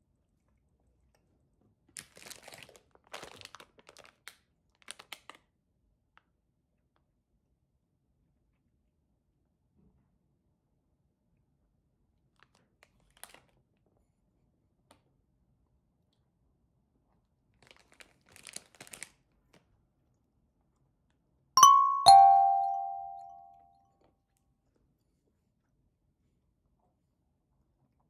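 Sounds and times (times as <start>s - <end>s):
two-note falling chime: 21.6s - 23.6s.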